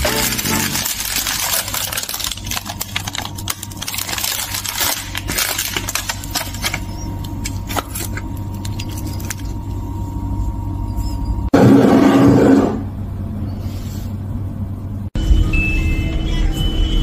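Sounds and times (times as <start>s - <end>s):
paper rustling: 0.0s - 9.8s
puff pastry crackling: 0.0s - 9.9s
steady low hum: 0.0s - 15.3s.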